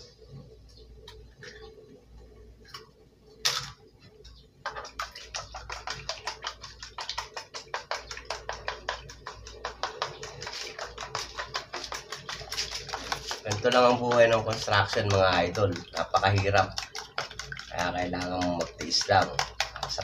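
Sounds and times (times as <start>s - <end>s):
egg cracking: 4.6s - 20.0s
fork beating eggs in plastic container: 4.6s - 20.0s.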